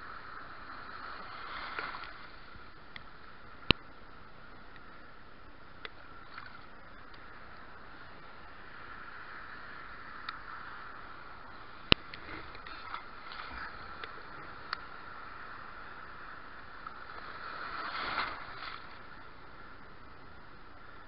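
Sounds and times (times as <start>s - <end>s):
sea water sloshing: 0.5s - 2.8s, 11.6s - 15.4s, 16.8s - 19.3s
water splashing: 10.0s - 15.5s, 16.6s - 19.4s.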